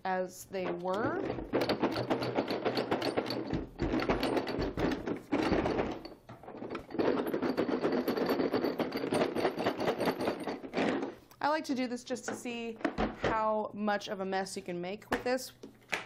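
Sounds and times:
tools rattling in plastic case: 0.6s - 11.3s.

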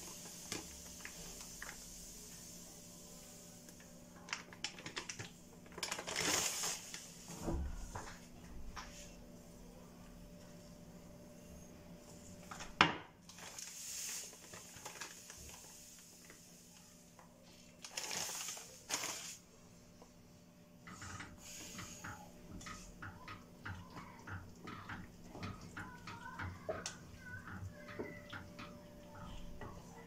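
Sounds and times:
wooden spoon stirring metal pot: 20.9s - 30.0s.

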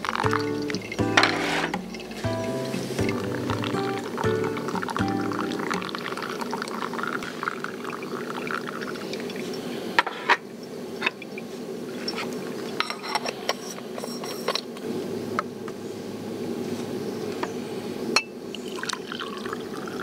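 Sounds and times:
liquid pouring: 0.0s - 9.6s, 18.6s - 20.0s.

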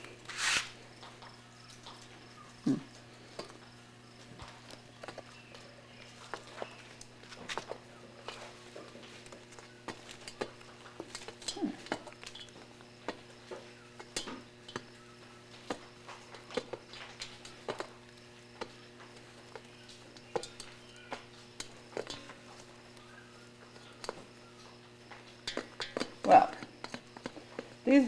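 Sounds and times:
beaks pecking on metal pan: 9.1s - 28.0s.

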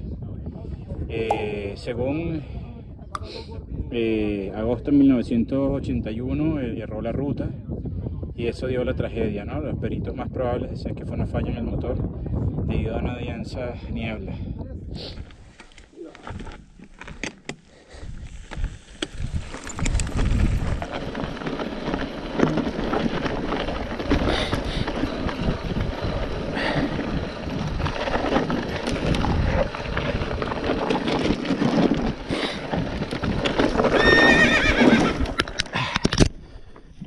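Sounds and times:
tyres crunching over gravel: 15.2s - 17.5s, 18.2s - 35.7s
bike rattling and knocking: 18.3s - 36.0s.

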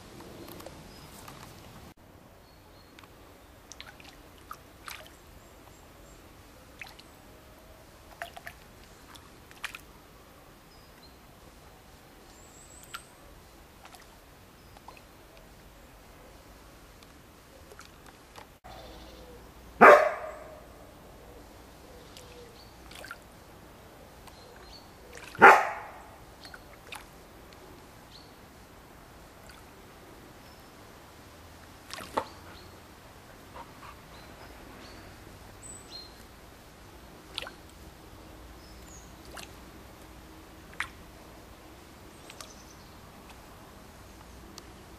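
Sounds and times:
water splashing and trickling: 0.0s - 21.1s, 22.0s - 44.9s
dog barking: 19.8s - 20.7s, 25.3s - 26.0s.

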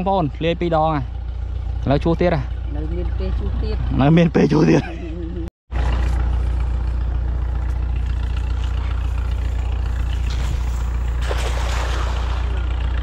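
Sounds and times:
net splashing into water: 10.3s - 12.7s.

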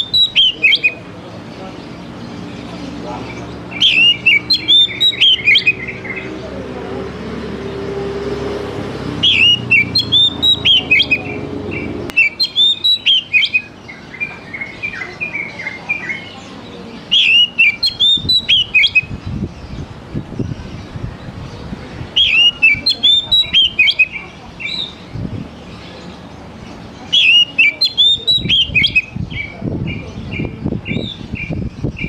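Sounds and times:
bird singing whistled notes: 0.0s - 1.0s, 2.5s - 6.3s, 9.2s - 21.0s, 22.1s - 26.1s, 27.0s - 32.0s.

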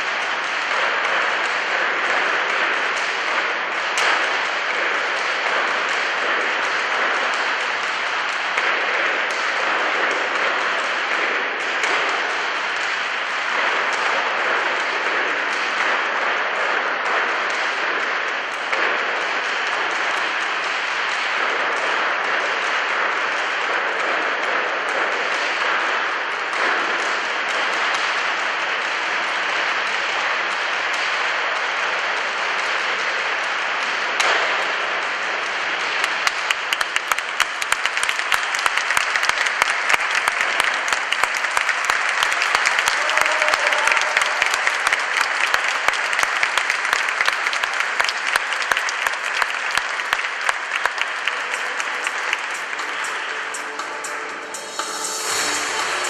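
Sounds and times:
audience applause: 35.1s - 56.0s.

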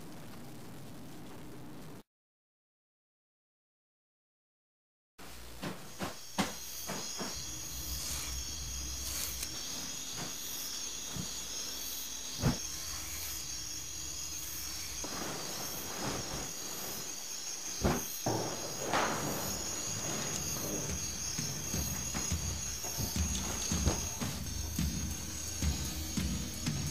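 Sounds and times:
steady hiss: 5.2s - 26.9s
thin high whine: 5.2s - 26.9s
soft rushes of noise: 14.1s - 21.1s.

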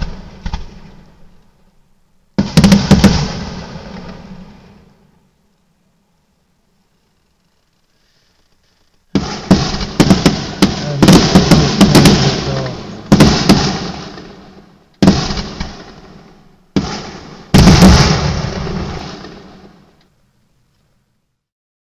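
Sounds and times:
fireworks bursting: 0.0s - 1.4s, 2.3s - 5.2s, 7.0s - 20.0s.

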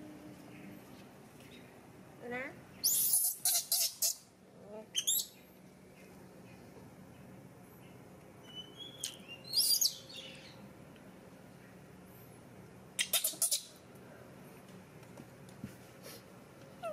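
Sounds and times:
baby monkeys squeaking: 2.8s - 4.3s, 4.9s - 5.4s, 8.4s - 10.5s, 13.0s - 13.8s.

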